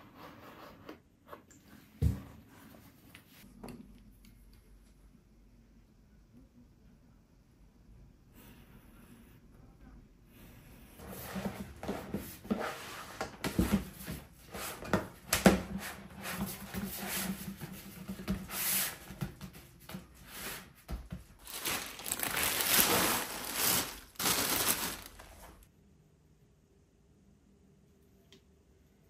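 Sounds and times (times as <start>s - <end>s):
hands rustling and scraping material: 21.3s - 25.6s.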